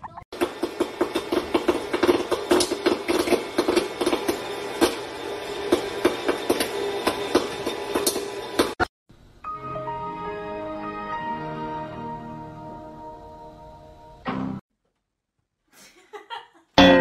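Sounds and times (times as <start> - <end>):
popcorn machine motor hum: 0.4 - 8.8
popcorn popping: 0.4 - 8.9.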